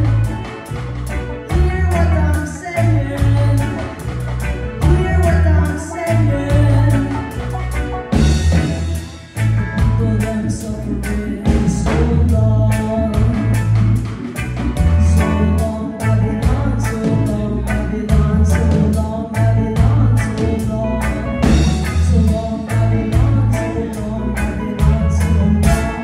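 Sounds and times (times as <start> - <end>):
live reggae band music: 0.0 - 26.0.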